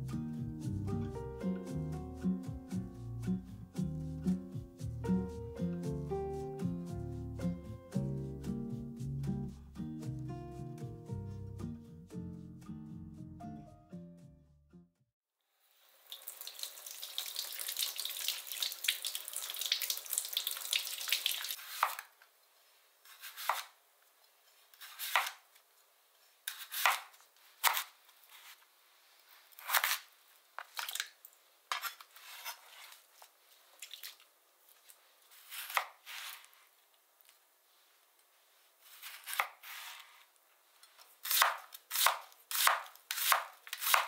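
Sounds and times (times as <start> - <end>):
knife slicing vegetable: 21.6 - 22.1, 23.1 - 23.8, 24.7 - 25.4, 26.5 - 28.6, 29.5 - 31.0, 35.3 - 36.6, 38.8 - 40.3, 41.0 - 44.0.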